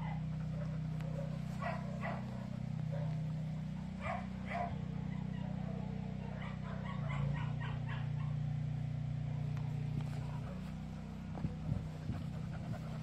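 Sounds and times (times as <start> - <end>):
dog barking: 0.0 - 3.3, 4.0 - 8.5, 10.0 - 10.8
steady low hum: 0.0 - 13.0.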